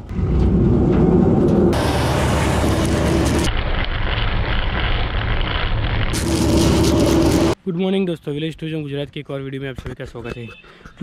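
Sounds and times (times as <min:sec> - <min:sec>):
threshing machine running: 0:00.0 - 0:07.6.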